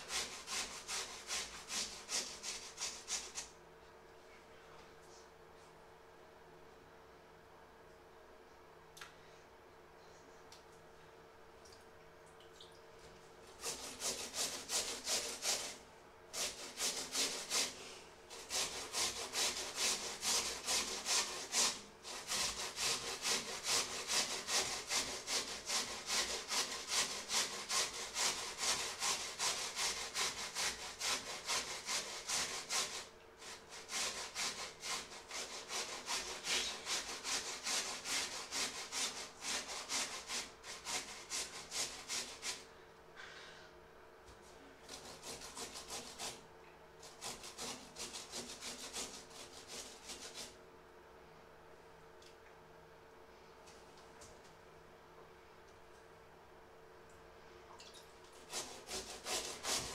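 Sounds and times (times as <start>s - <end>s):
potato rasping on metal grater: 0.0s - 3.5s, 13.6s - 42.6s, 44.9s - 46.4s, 47.0s - 50.6s, 58.4s - 59.9s.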